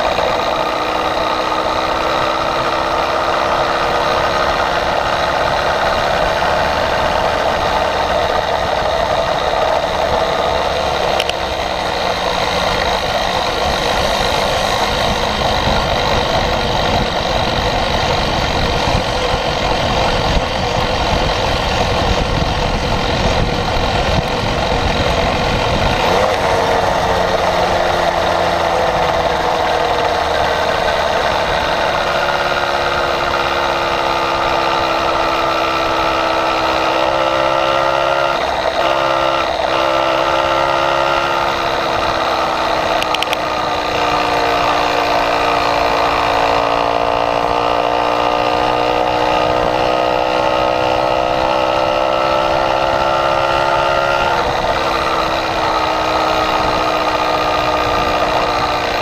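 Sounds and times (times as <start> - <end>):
small motorbike engine running: 0.0 - 59.0.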